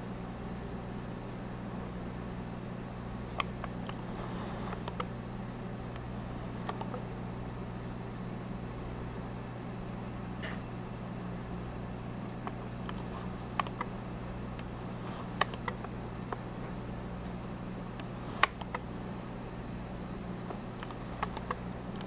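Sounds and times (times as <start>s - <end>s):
electrical hum with hiss: 0.0s - 22.0s
faint clicks: 3.3s - 5.1s, 5.9s - 7.0s, 12.4s - 13.9s, 20.5s - 22.0s.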